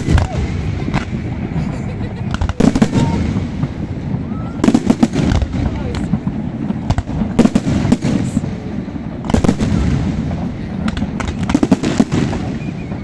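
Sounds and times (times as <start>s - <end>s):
fireworks bursting with sharp bangs: 0.0s - 13.0s
steady low rumble: 0.0s - 13.0s.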